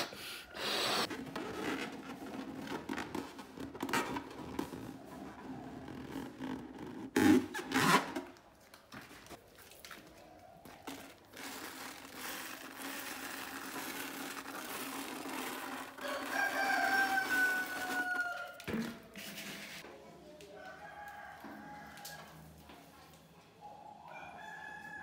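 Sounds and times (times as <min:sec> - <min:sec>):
balloon rubbing handling noise: 0:00.0 - 0:08.4
rooster crowing: 0:16.0 - 0:18.6, 0:20.6 - 0:22.4, 0:24.0 - 0:25.0.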